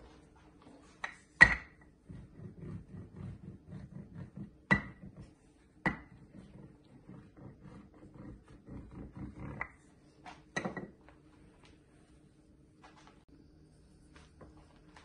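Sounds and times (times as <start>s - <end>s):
rolling pin rumbling over pan: 1.4s - 9.9s.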